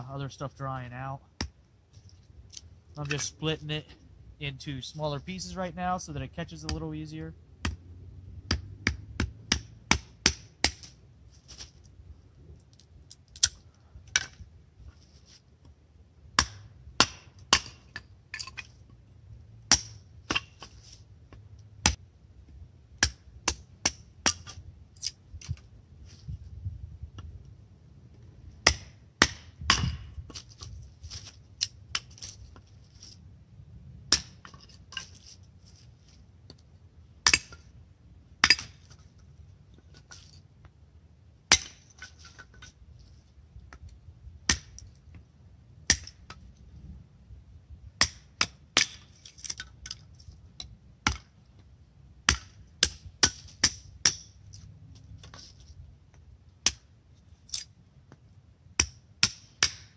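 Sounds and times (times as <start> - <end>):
hatchet splitting wood: 8.4 - 11.0, 16.4 - 18.6, 19.7 - 20.8, 23.0 - 25.6, 28.6 - 30.5, 34.1 - 35.2, 37.2 - 37.7, 41.5 - 42.7, 44.5 - 44.9, 45.9 - 46.4, 48.0 - 49.8, 52.3 - 54.4, 56.6 - 56.9, 58.8 - 59.9.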